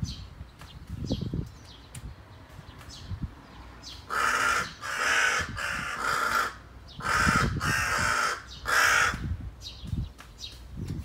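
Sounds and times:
crow cawing: 4.1 - 9.3.

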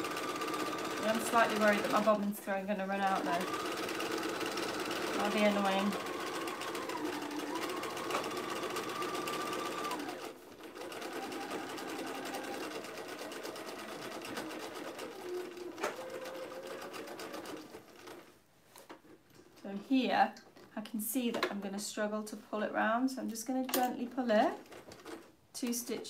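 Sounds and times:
sewing machine stitching: 0.0 - 18.3, 24.4 - 26.0.

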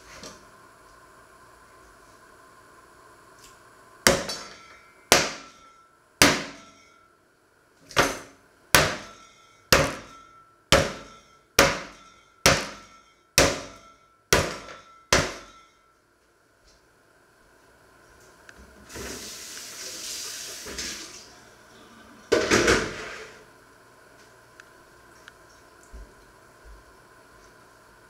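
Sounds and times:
saucepan pounding meat on board: 5.1 - 5.5, 6.2 - 6.6, 8.7 - 9.1, 9.7 - 10.1, 10.7 - 12.8, 13.4 - 15.5.

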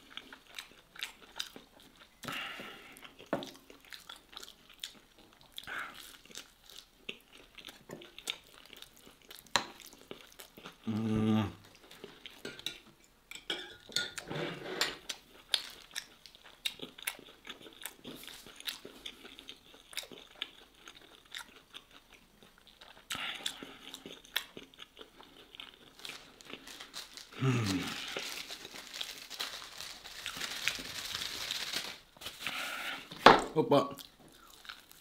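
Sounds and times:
close-miked chewing and biting: 0.0 - 10.9, 15.1 - 30.8, 34.0 - 35.0
person humming low: 10.8 - 11.6, 27.4 - 28.2.

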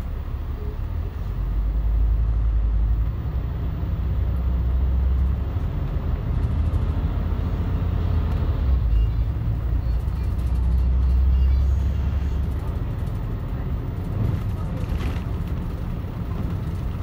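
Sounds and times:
bus diesel engine drone: 0.0 - 17.0.

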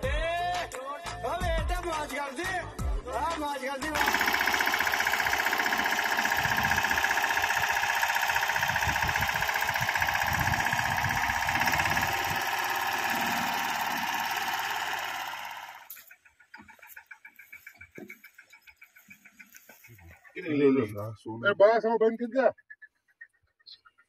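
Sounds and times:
tractor diesel engine knocking: 4.0 - 20.1.

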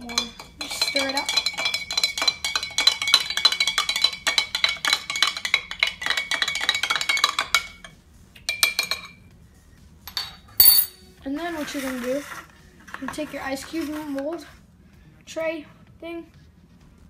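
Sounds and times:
spoon clinking in glass jar: 0.0 - 7.9, 10.1 - 11.0.

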